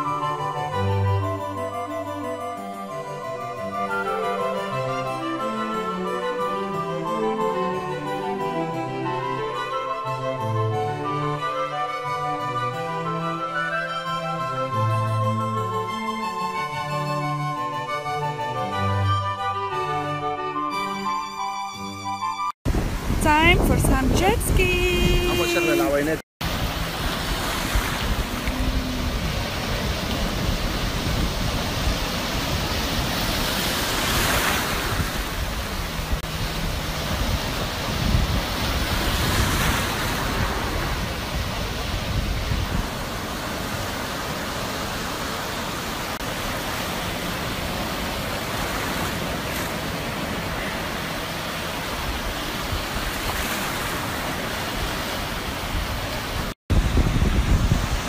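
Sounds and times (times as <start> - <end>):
wind buffeting microphone: 22.7 - 25.6, 26.4 - 44.9, 46.2 - 58.0
sea waves breaking on shore: 22.7 - 58.0.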